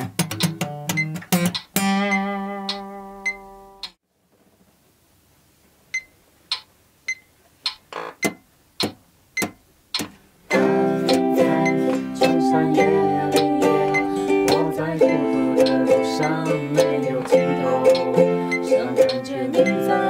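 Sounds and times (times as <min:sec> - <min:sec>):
metronome ticking: 0:00.0 - 0:04.0, 0:05.9 - 0:20.0
ukulele strumming: 0:10.5 - 0:20.0.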